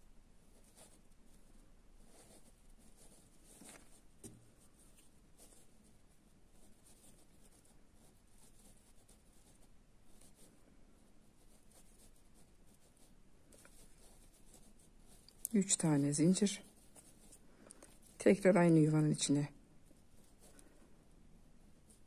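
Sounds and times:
crochet hook scratching cord: 0:02.1 - 0:10.5, 0:11.3 - 0:20.6.

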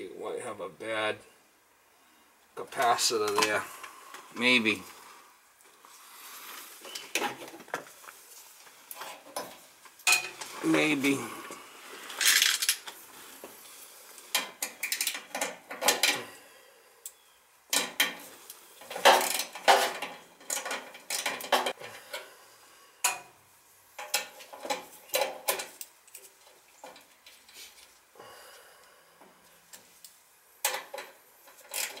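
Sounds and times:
metallic clicks and rattles: 0:18.8 - 0:22.2, 0:30.0 - 0:32.0.

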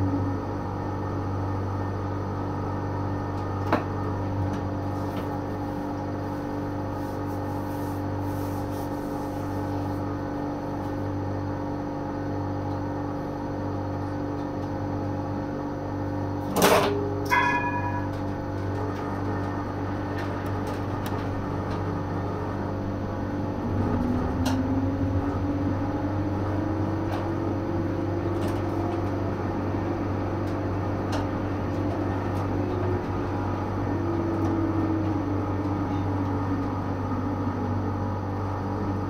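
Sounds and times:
tram electrical hum: 0:00.0 - 0:39.0
bell ding: 0:17.3 - 0:18.3.

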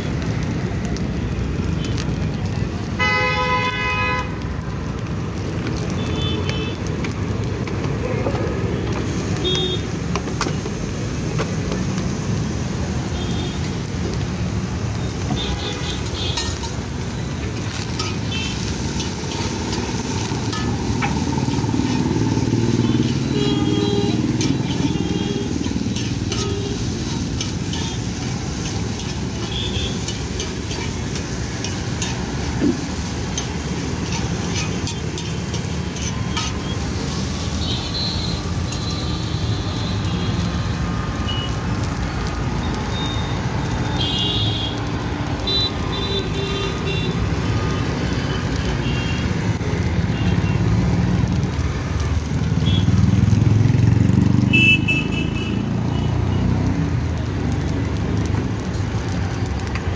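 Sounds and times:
street traffic rumble: 0:00.0 - 0:59.9
spatula scraping on griddle: 0:24.1 - 0:36.9.

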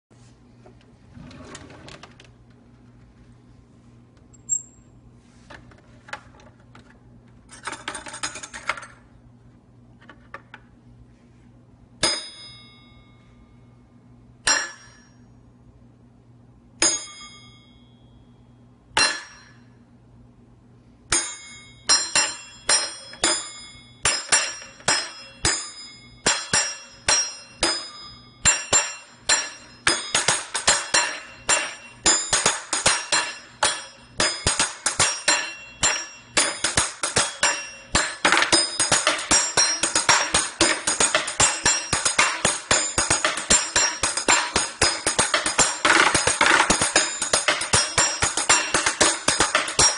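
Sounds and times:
cutlery clinks and clangs: 0:21.2 - 0:49.9
silverware jangling: 0:26.4 - 0:49.9.

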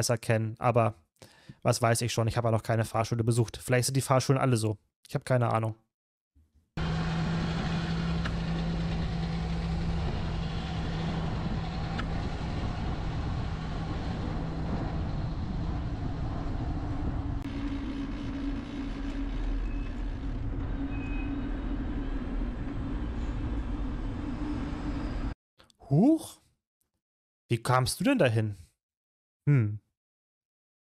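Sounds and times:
bus humming: 0:06.8 - 0:25.4
wind and road noise: 0:06.8 - 0:25.4.

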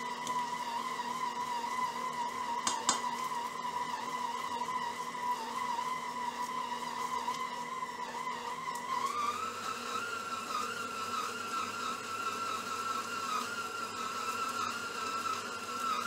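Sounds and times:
stand mixer motor whining: 0:00.0 - 0:16.0.

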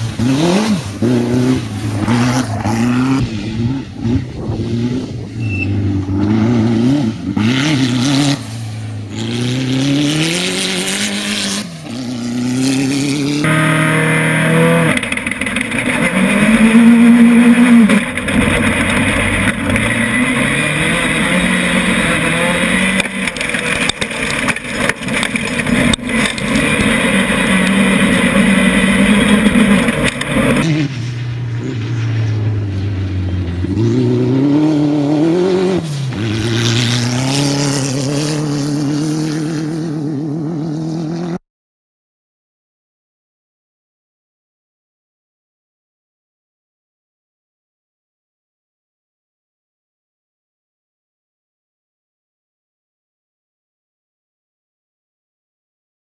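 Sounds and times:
engine and rushing noise: 0:00.0 - 0:41.4
race car engines revving: 0:00.0 - 0:41.4.

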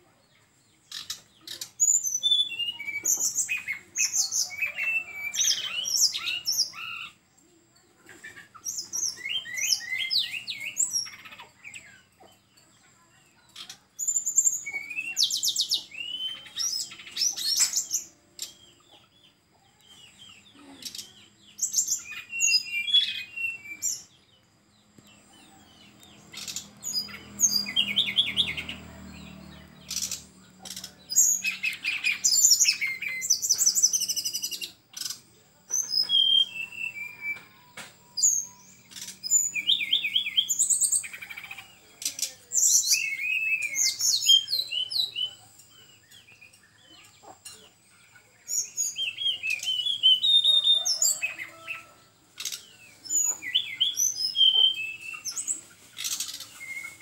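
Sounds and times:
bird singing high trills: 0:00.8 - 0:07.2, 0:14.0 - 0:18.8, 0:20.3 - 0:24.4, 0:25.4 - 0:46.8, 0:48.5 - 0:57.0.

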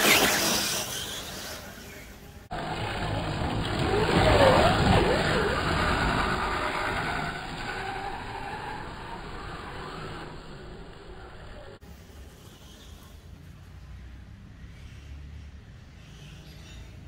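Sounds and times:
model motocross bike revving: 0:00.0 - 0:11.8.

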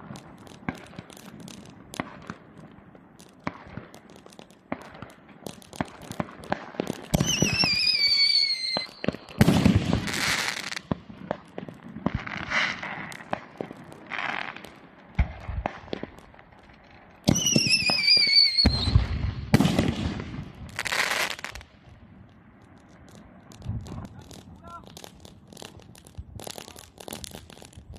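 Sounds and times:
fireworks bursting: 0:00.0 - 0:27.9
scattered pops: 0:22.3 - 0:27.9.

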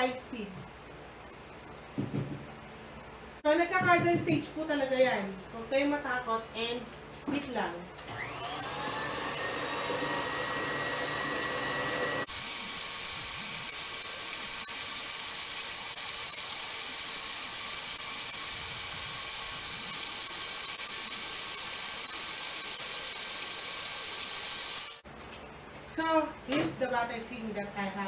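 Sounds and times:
stand mixer whirring: 0:08.1 - 0:12.4.

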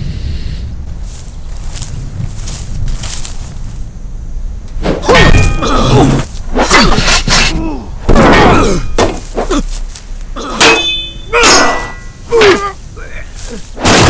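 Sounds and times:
weapons striking shields: 0:04.8 - 0:09.4, 0:10.6 - 0:12.8
men grunting and shouting: 0:05.0 - 0:13.9.

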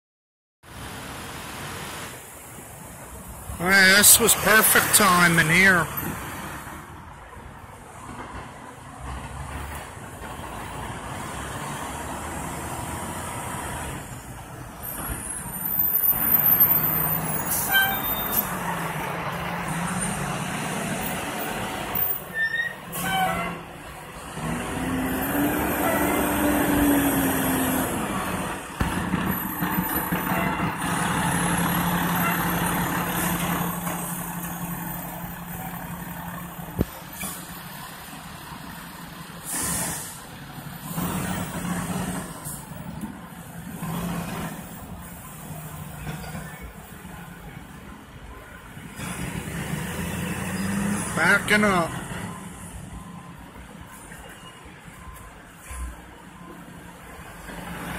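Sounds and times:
diesel truck engines running: 0:00.8 - 0:57.9
air brake hisses: 0:39.4 - 0:40.3.

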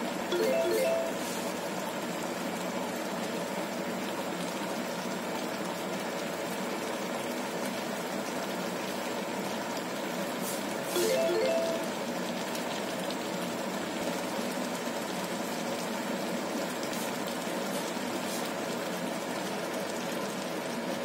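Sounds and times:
short rising chime: 0:00.3 - 0:01.4, 0:11.0 - 0:12.0.

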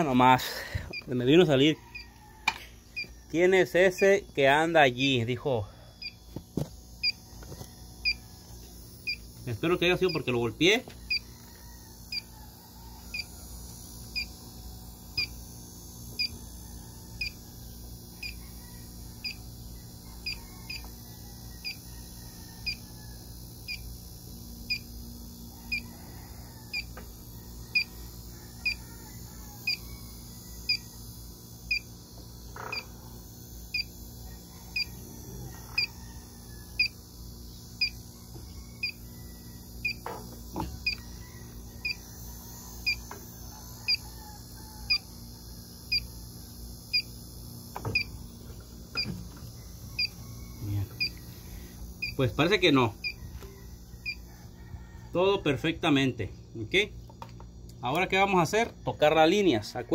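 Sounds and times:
leak detector high beeps: 0:00.0 - 0:02.1, 0:02.9 - 0:08.4, 0:09.0 - 0:11.3, 0:12.1 - 0:12.3, 0:13.1 - 0:13.3, 0:14.0 - 0:14.4, 0:15.1 - 0:15.5, 0:16.1 - 0:16.4, 0:17.2 - 0:17.4, 0:18.2 - 0:18.4, 0:19.2 - 0:19.5, 0:20.1 - 0:20.9, 0:21.6 - 0:21.9, 0:22.6 - 0:22.8, 0:23.6 - 0:25.0, 0:26.7 - 0:26.9, 0:27.7 - 0:28.8, 0:29.6 - 0:31.0, 0:31.6 - 0:32.0, 0:32.6 - 0:32.9, 0:33.7 - 0:34.0, 0:34.7 - 0:35.0, 0:36.7 - 0:37.0, 0:37.8 - 0:41.2, 0:41.8 - 0:42.0, 0:42.8 - 0:43.1, 0:43.9 - 0:44.1, 0:44.9 - 0:45.1, 0:45.8 - 0:46.2, 0:46.9 - 0:48.2, 0:48.9 - 0:54.2.

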